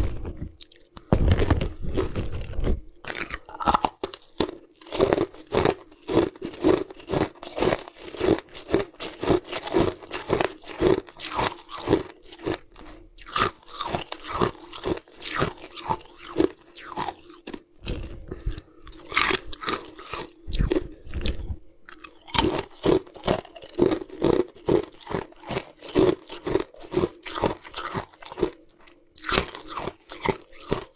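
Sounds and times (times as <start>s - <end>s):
ice crunching between teeth: 0.0s - 30.9s.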